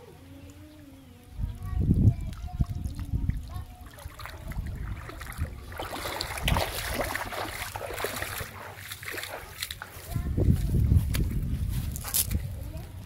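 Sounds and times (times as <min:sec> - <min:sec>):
shallow water splashing: 0:01.5 - 0:11.4.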